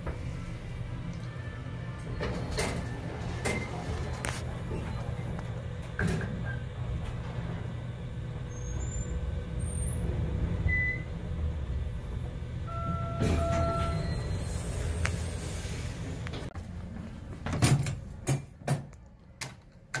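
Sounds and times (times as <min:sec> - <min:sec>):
elevator low rumble: 0:00.0 - 0:20.0.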